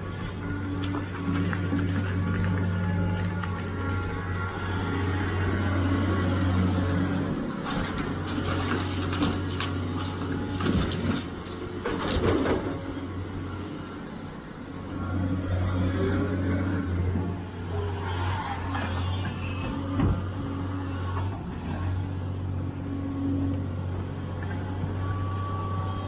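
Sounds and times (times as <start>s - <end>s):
excavator diesel engine drone: 0.0s - 26.0s
soil and rocks clattering: 0.6s - 4.0s, 7.6s - 13.2s.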